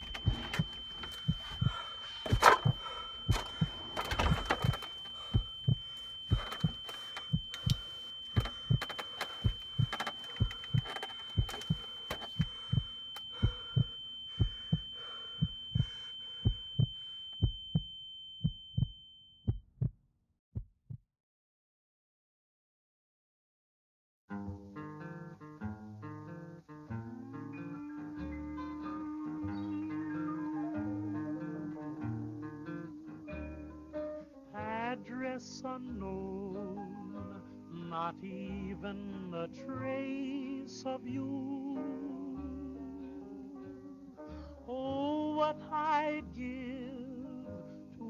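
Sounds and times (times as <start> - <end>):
high-pitched ringing tone: 0.0 - 19.6, 27.2 - 43.8
heartbeat thumps: 0.0 - 20.0, 20.6 - 21.0.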